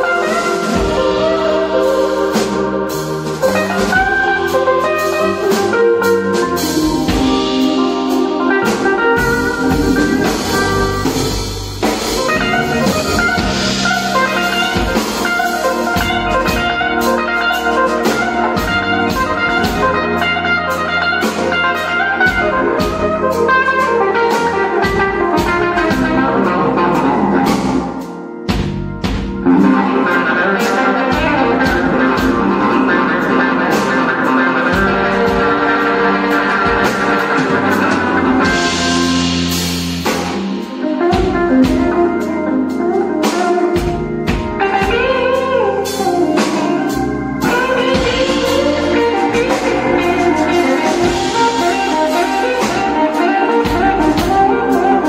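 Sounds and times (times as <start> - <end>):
blues-rock band playing: 0.0 - 55.0
drum kit: 0.0 - 55.0
electric guitar lead: 0.0 - 55.0.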